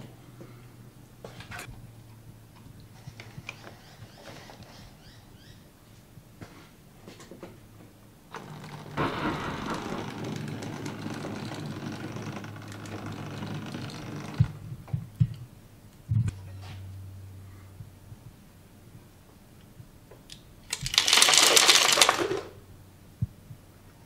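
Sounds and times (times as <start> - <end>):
steady low hum: 8.1 - 20.6
wagon buffers clunking: 8.3 - 14.6
model train motor rumble: 8.3 - 14.7.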